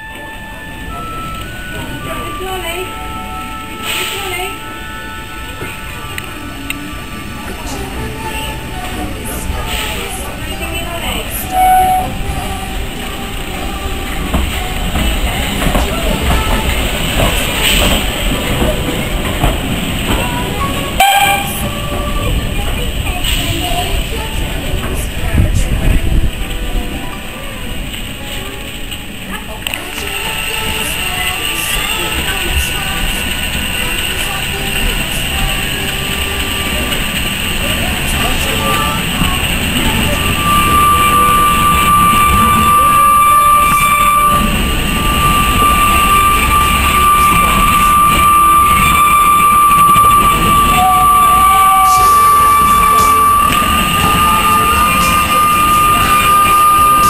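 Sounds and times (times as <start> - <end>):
steam train running past: 0.0 - 57.0
high-pitched squeal: 28.2 - 57.0.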